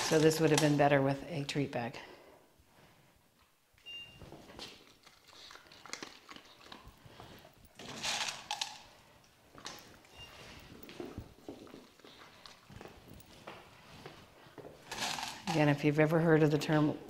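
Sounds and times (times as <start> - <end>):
dog crunching kibble: 4.6 - 10.1
kibble rattling: 7.8 - 8.9, 14.9 - 15.8.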